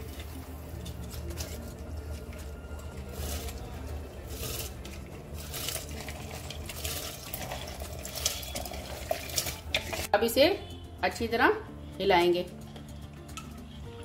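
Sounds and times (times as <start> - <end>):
water boiling in a pressure cooker: 2.0 - 10.1
rice and lentils splashing into water: 4.2 - 10.1.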